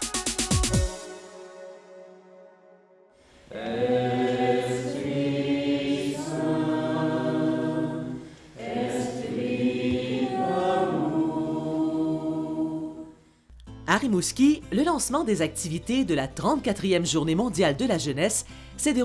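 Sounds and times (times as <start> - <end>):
group singing a hymn: 3.3 - 13.3.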